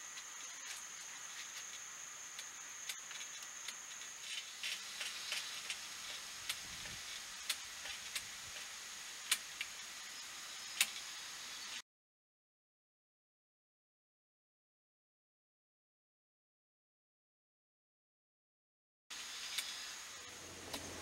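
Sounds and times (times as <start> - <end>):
faint high hiss: 0.0 - 11.8, 19.1 - 21.0.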